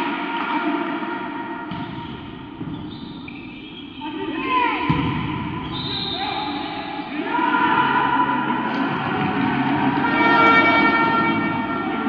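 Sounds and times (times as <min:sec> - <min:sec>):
volleyball hits: 0:04.8 - 0:05.8.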